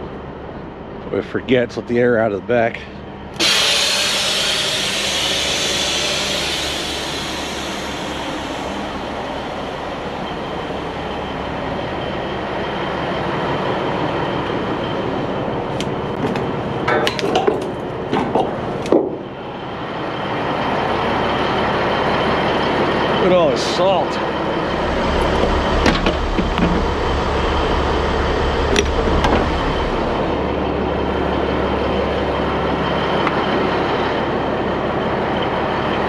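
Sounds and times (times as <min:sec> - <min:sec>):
steady low hum: 0:00.0 - 0:33.2
compressed air hissing: 0:03.4 - 0:10.2.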